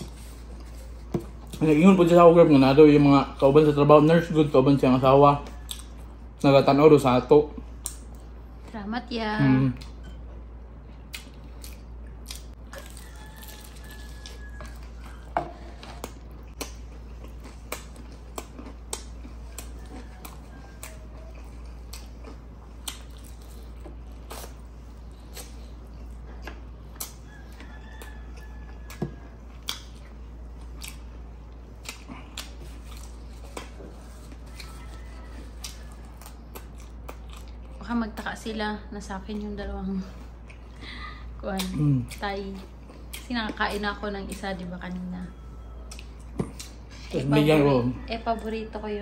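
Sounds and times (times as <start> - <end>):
low steady hum: 0.0 - 49.0
chewing and mouth clicks: 5.4 - 6.4, 9.7 - 38.4, 39.3 - 40.8, 41.4 - 45.0, 45.8 - 47.0.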